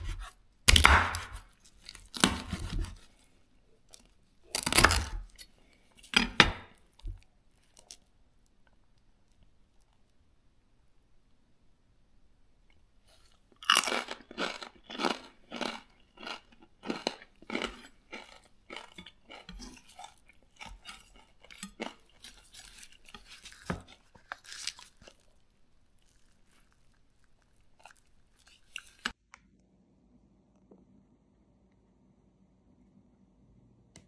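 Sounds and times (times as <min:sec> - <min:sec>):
knife crunching crispy pork crackling: 0:00.0 - 0:03.1, 0:04.0 - 0:05.5, 0:13.6 - 0:29.2.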